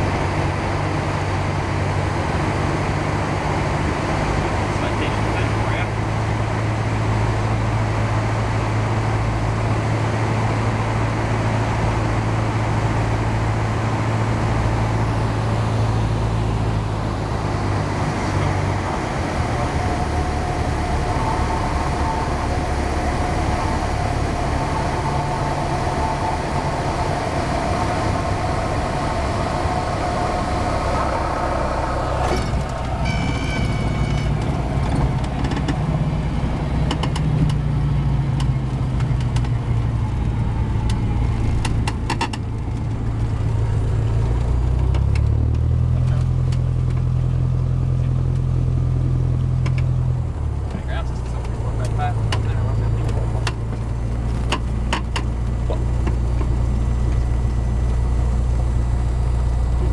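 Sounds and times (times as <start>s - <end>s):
aircraft engine and propeller: 0.0s - 59.9s.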